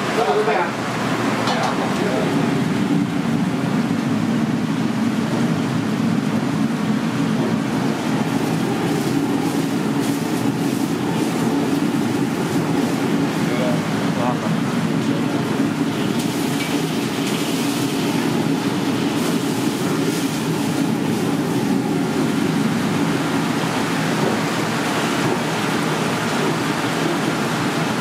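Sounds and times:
kitchen machinery roar: 0:00.0 - 0:28.0.

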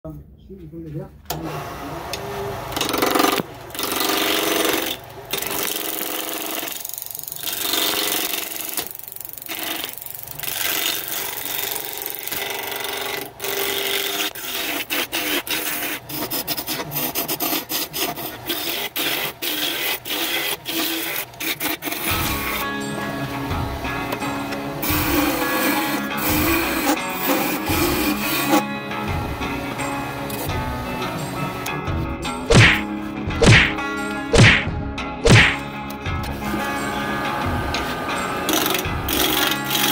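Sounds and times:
lathe gouge scraping wood: 0:09.5 - 0:22.6, 0:24.8 - 0:28.6.

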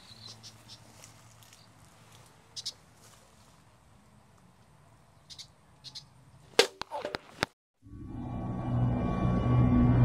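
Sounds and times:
footsteps in dry grass: 0:00.0 - 0:04.4.

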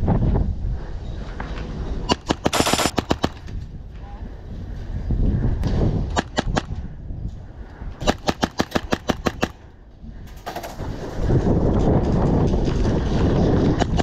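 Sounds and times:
airsoft rifle shots: 0:02.1 - 0:03.5, 0:06.1 - 0:06.8, 0:08.0 - 0:09.6
loud rough noise: 0:02.3 - 0:03.1.

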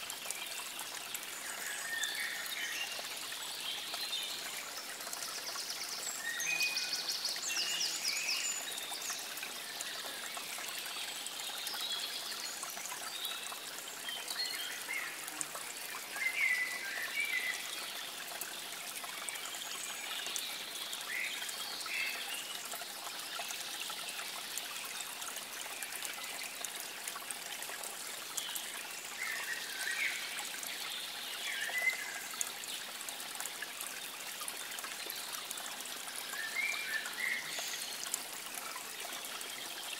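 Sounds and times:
water trickling: 0:00.0 - 0:39.9
small birds singing: 0:00.4 - 0:15.2, 0:34.6 - 0:39.9.

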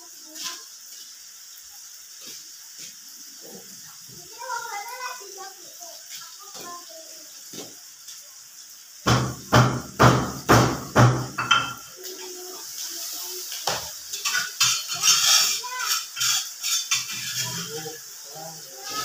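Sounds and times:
cookware knocks: 0:09.1 - 0:11.9
spatula scraping frying pan: 0:13.6 - 0:18.2.

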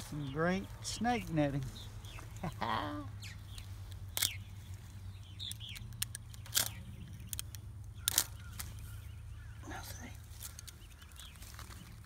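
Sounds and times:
utility knife snipping netting: 0:05.5 - 0:08.9.

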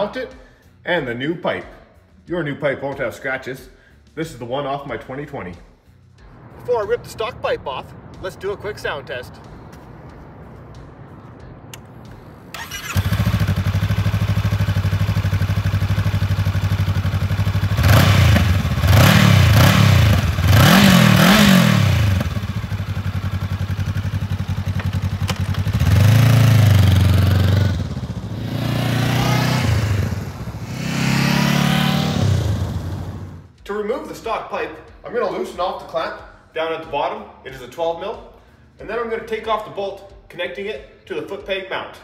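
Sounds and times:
motorcycle engine idling: 0:12.5 - 0:30.6
motorcycle engine revving: 0:12.5 - 0:33.5.

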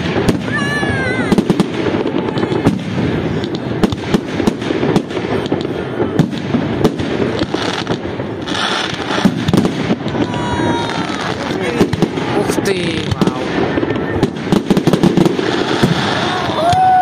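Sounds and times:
fireworks bursting: 0:00.0 - 0:17.0
fireworks hissing: 0:00.0 - 0:17.0.

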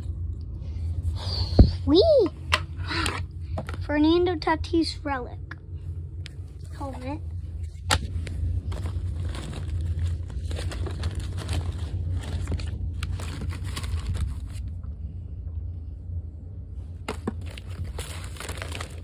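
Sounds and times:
cards in plastic rustling and clicking: 0:07.8 - 0:14.7, 0:17.1 - 0:19.0.

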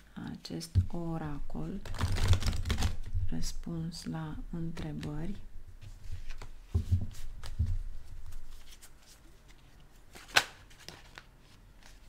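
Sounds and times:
cards shuffled by hand: 0:01.8 - 0:03.1.

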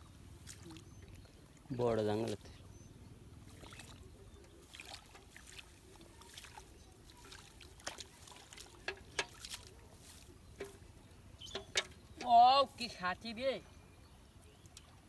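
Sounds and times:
hands splashing in muddy water: 0:00.4 - 0:01.2, 0:03.5 - 0:10.8.

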